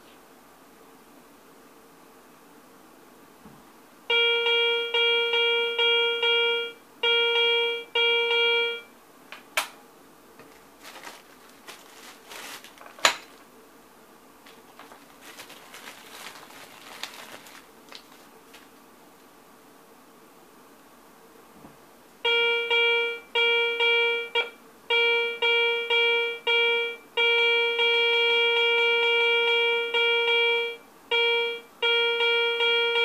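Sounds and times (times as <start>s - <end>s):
rustling of items handled: 10.4s - 13.5s, 14.4s - 18.8s.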